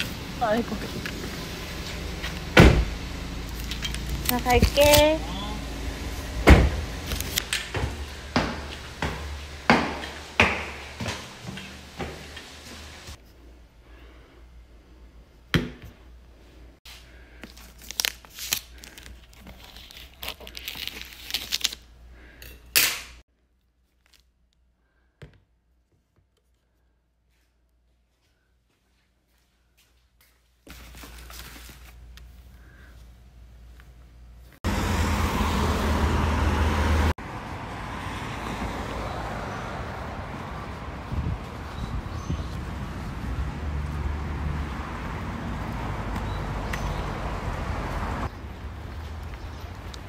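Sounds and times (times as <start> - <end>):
street traffic noise: 0.0 - 13.2, 34.2 - 50.0
vehicle engine rumbling: 0.0 - 13.2, 32.6 - 50.0
outdoor background noise: 0.0 - 50.0
plastic wrap crinkling: 17.4 - 21.9, 30.6 - 32.4.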